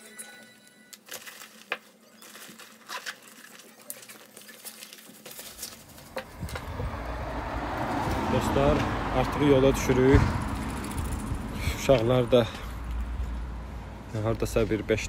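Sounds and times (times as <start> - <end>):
rustling of belongings: 0.0 - 7.2
low rumble: 5.9 - 14.0.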